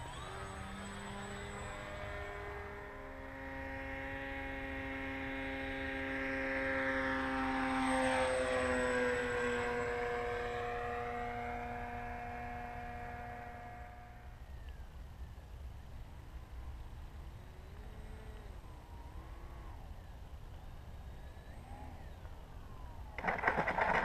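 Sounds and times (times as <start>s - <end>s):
electric plane motor and propeller: 0.0s - 24.0s.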